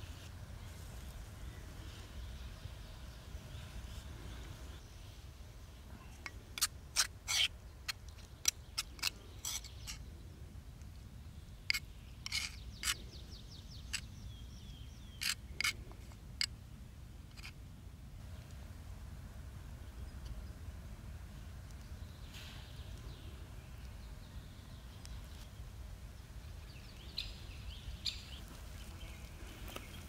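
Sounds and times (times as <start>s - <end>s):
knife scraping and tapping mortar: 11.7s - 13.0s, 15.2s - 16.5s.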